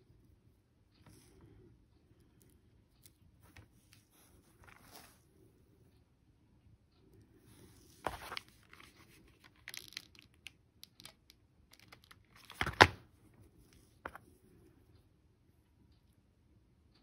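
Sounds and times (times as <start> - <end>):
small clicks and rustles: 6.9 - 15.1.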